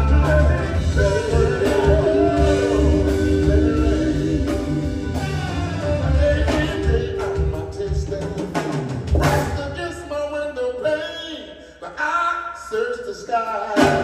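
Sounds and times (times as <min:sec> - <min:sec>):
people singing: 0:00.0 - 0:08.6, 0:12.8 - 0:14.0
drum kit beat: 0:00.0 - 0:10.1, 0:13.8 - 0:14.0
soul band playing: 0:00.0 - 0:10.9, 0:13.4 - 0:14.0.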